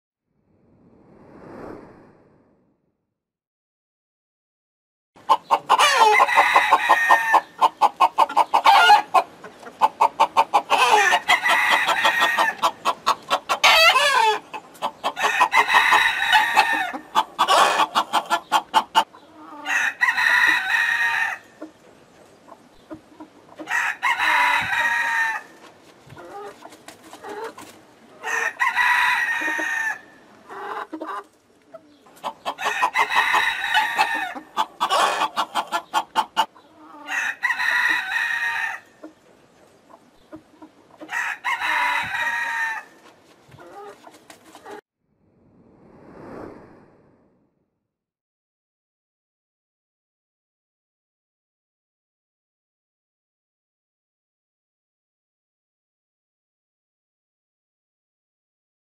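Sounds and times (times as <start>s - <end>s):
hens clucking: 5.2s - 20.6s, 21.2s - 28.6s, 29.3s - 44.8s
roosters crowing: 5.6s - 9.2s, 10.4s - 12.9s, 13.5s - 18.3s, 19.6s - 21.6s, 23.6s - 25.6s, 28.2s - 30.2s, 32.5s - 35.6s, 36.9s - 39.0s, 41.0s - 43.0s.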